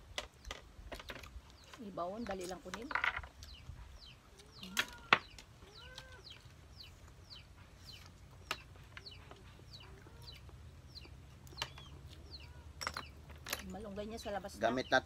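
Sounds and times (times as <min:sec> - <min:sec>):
chickens clucking: 0:03.5 - 0:13.3.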